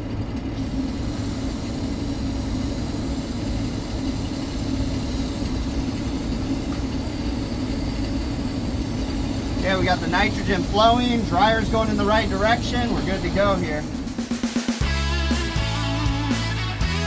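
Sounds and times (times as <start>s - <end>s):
air conditioning hum: 0.0s - 14.7s.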